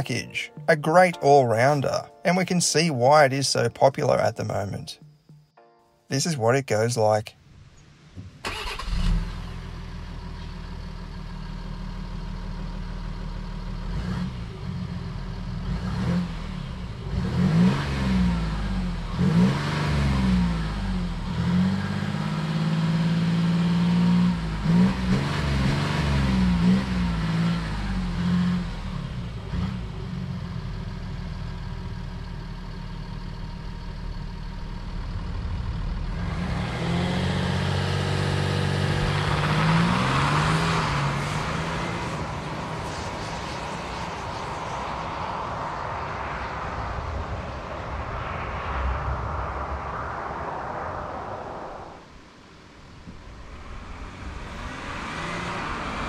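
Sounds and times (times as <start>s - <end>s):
diesel engine accelerating: 8.4s - 52.0s, 53.3s - 56.0s
rushing noise: 32.3s - 56.0s.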